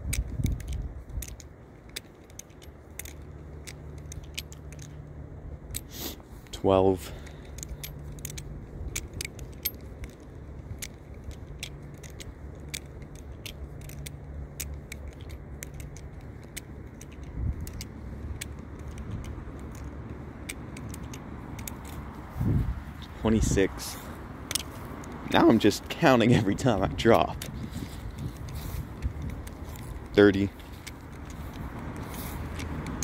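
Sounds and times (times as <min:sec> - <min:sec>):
wind rumbling on microphone: 0:00.0 - 0:01.7, 0:15.8 - 0:33.0
butterfly knife clicking and rattling: 0:00.0 - 0:33.0.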